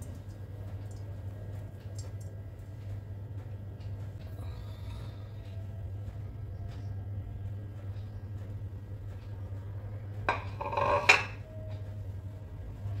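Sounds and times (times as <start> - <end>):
steady low hum: 0.0 - 13.0
ceramic plate clattering on counter: 10.3 - 11.4.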